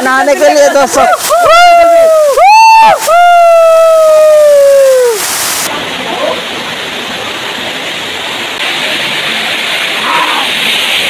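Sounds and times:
waterfall rushing: 0.0 - 11.0
person yelling: 1.0 - 5.2.

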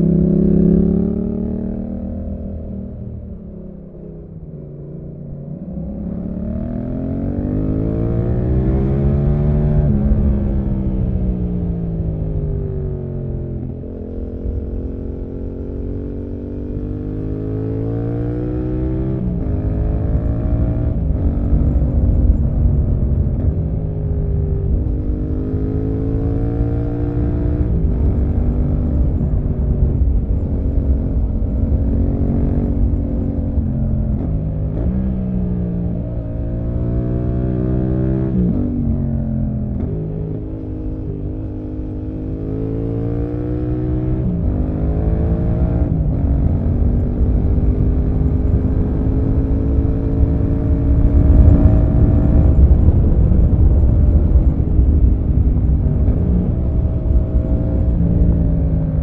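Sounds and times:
motorcycle engine revving: 0.0 - 59.0
wind rush: 50.7 - 58.0.

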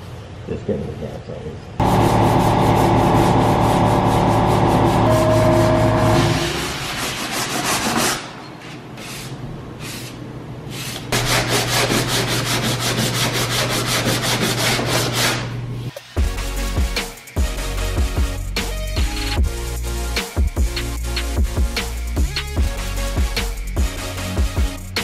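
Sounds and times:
droning hum: 1.8 - 7.1
sandpaper rubbing on metal panel: 1.8 - 15.6.

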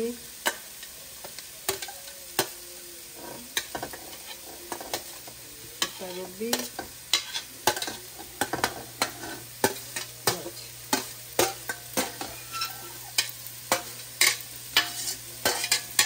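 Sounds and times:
metal spoon scraping steel platter: 12.0 - 16.0.

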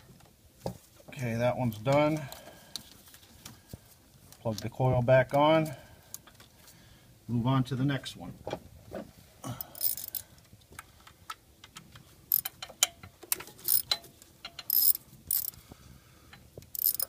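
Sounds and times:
hand ratchet clicking: 9.6 - 10.2, 12.3 - 13.0, 13.7 - 15.6, 16.7 - 17.0.

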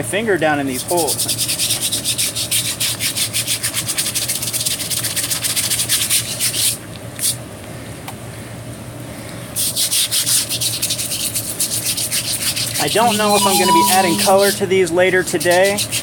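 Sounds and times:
brush scrubbing wet wood: 9.8 - 13.3.

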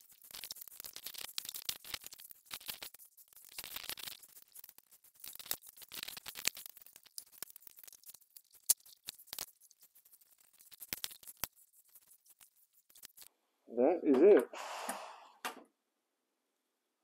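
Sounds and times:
paint roller swishing: 0.0 - 5.9, 8.2 - 13.3.

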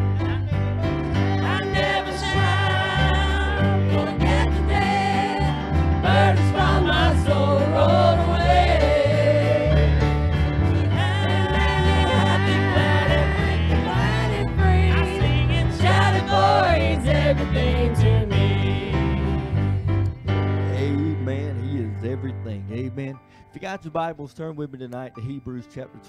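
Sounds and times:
gospel singing over a band: 0.0 - 19.8
stepping bass line: 0.0 - 23.0.

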